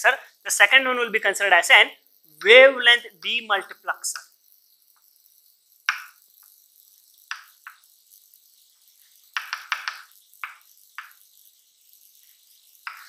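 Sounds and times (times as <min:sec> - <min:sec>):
chalk writing on blackboard: 0:04.1 - 0:13.0.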